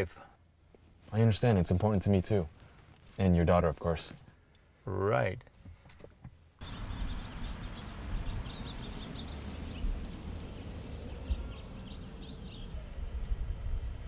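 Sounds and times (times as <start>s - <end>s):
birds chirping: 6.6s - 13.6s
low outdoor rumble: 6.6s - 14.0s.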